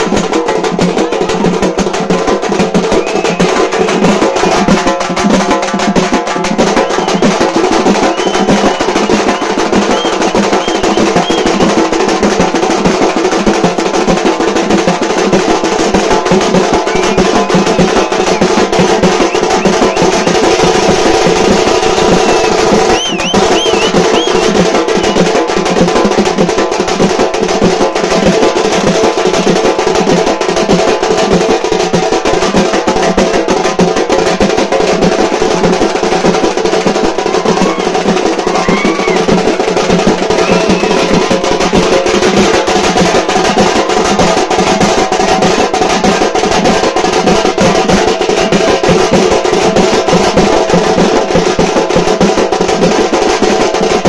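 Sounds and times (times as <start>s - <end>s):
street drum band drumming: 0.0s - 54.0s
high whistle-like chirps: 8.0s - 11.5s, 16.9s - 18.5s, 21.9s - 25.2s.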